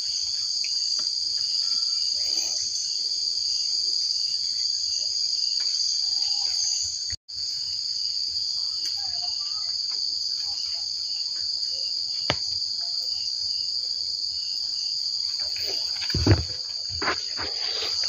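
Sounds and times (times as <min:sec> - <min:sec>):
insects chorus: 0:00.0 - 0:18.0.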